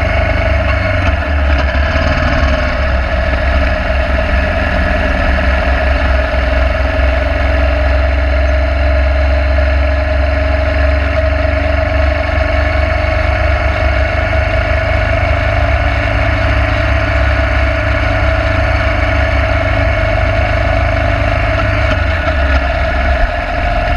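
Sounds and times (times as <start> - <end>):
motorcycle engine cruising: 0.0 - 23.9
wind and road noise: 0.0 - 23.9.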